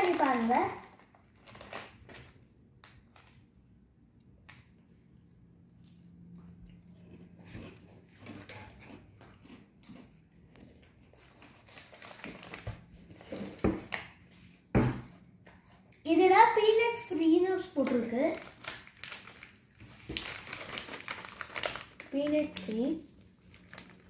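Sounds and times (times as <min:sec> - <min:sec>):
crunchy cookies chewed: 0:05.7 - 0:14.0, 0:18.3 - 0:24.0.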